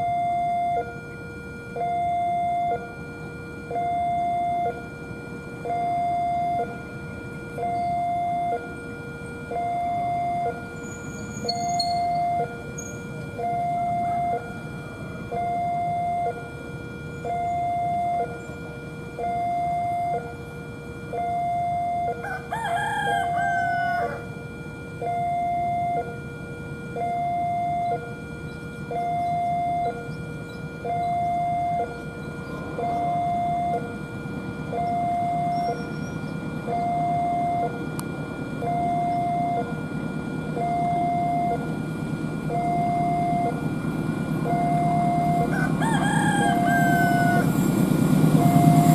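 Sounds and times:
level-crossing alarm ding-dong: 0:00.0 - 0:48.9
rooster crowing: 0:22.1 - 0:24.4, 0:45.1 - 0:48.9.

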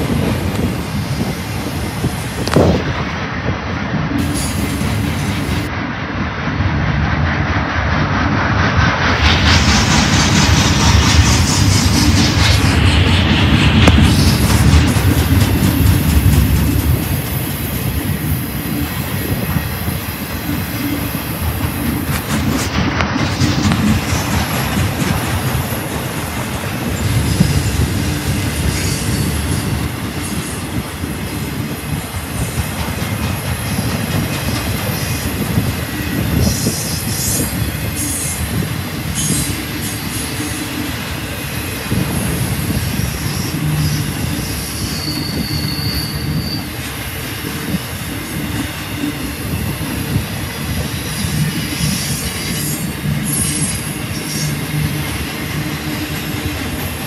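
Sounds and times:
train wheels rumbling on rail: 0:00.0 - 0:57.0
high wheel squeals: 0:26.8 - 0:30.6, 0:41.7 - 0:47.4.

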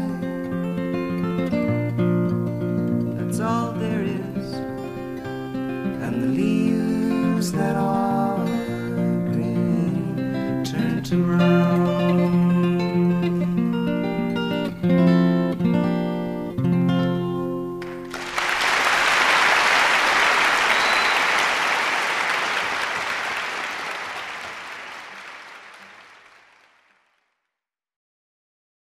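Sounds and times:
applause: 0:17.8 - 0:27.4.

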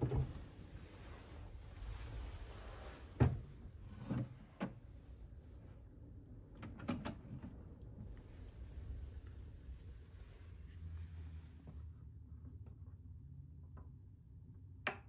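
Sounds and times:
drawer opening and knocking: 0:00.0 - 0:00.5, 0:03.1 - 0:04.8.

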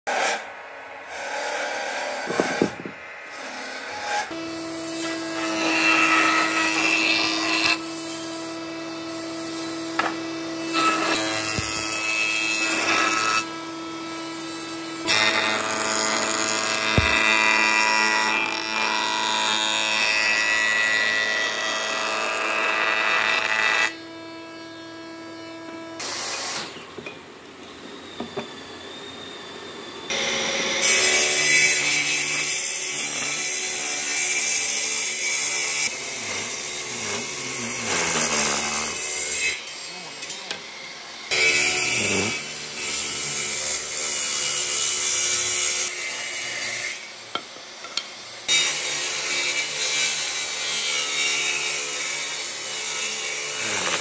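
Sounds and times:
woodworking machines cutting wood: 0:00.1 - 0:54.0
wooden beams knocking together: 0:16.9 - 0:17.4.

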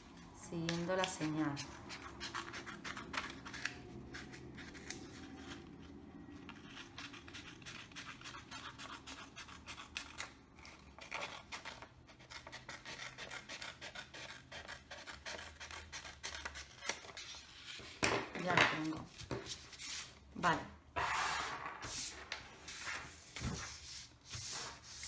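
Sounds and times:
scissors snipping paper: 0:06.5 - 0:17.5.

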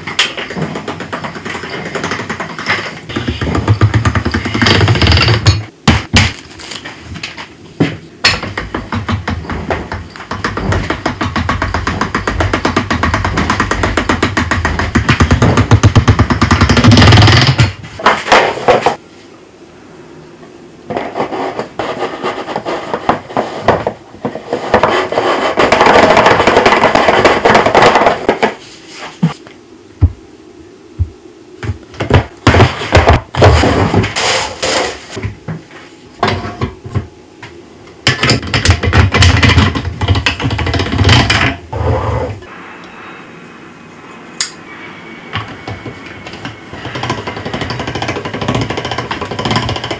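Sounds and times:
knocks and taps: 0:00.0 - 0:06.2, 0:07.3 - 0:17.7.

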